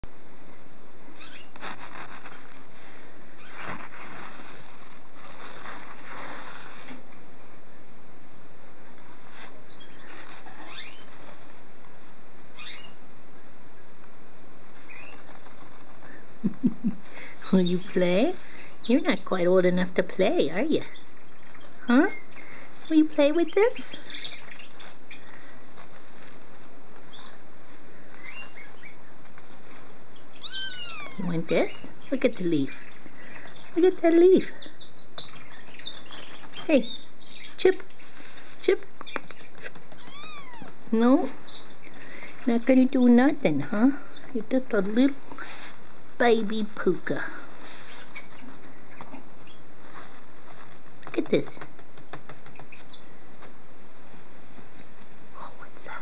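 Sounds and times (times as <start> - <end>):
steady background hiss: 0.0 - 56.0
rustling and scratching: 1.2 - 13.0, 14.0 - 56.0
faint high chirps: 28.2 - 42.4.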